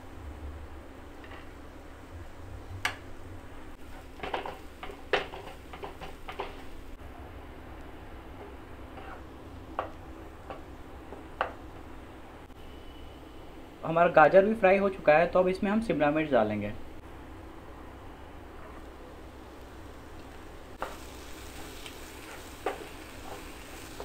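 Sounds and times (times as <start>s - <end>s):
carrots knocking in a frying pan: 4.2s - 6.7s, 22.6s - 24.0s.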